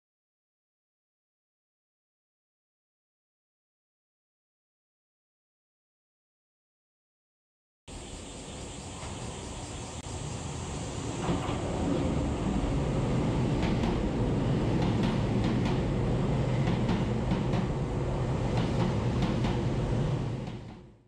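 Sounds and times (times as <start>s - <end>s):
train running into station: 7.9s - 21.0s
wheel clacks over rail joints: 11.2s - 12.1s, 13.6s - 14.1s, 16.5s - 17.8s.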